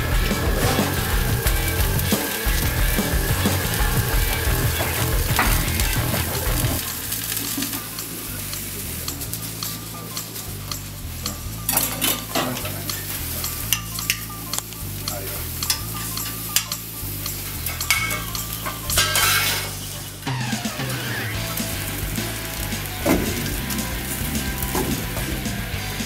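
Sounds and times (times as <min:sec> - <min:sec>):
background music: 0:00.0 - 0:26.0
meat sizzling on grill: 0:00.0 - 0:26.0
metal tongs clicking: 0:08.0 - 0:19.7.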